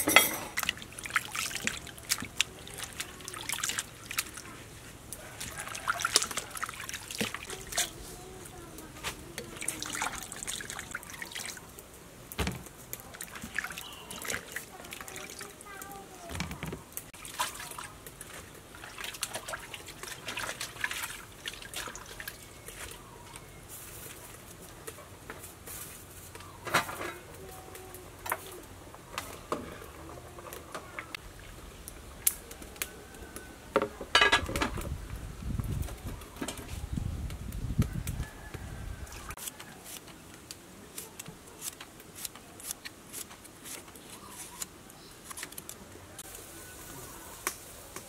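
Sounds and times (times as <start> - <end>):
pots and lids clinking: 0.0 - 0.6, 33.8 - 34.8
water trickling and splashing: 0.4 - 12.0, 12.7 - 16.2, 16.8 - 23.1, 29.8 - 32.9.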